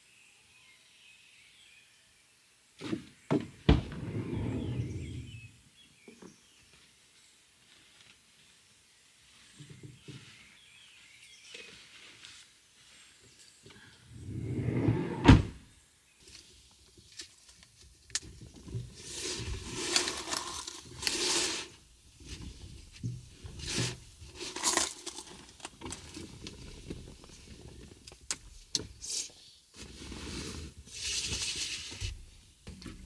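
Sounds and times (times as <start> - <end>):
car door shutting: 15.0 - 15.6.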